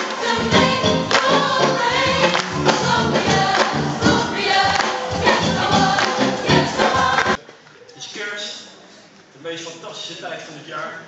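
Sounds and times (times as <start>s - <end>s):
gospel choir singing: 0.0s - 7.4s
live band with steady beat: 0.2s - 7.4s.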